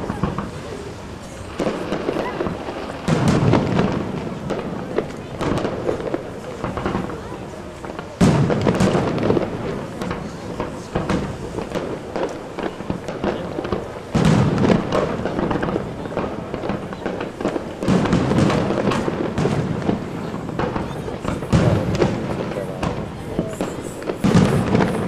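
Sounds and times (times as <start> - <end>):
firework crackling and pops: 0.0 - 25.0
firework shells bursting: 7.8 - 25.0.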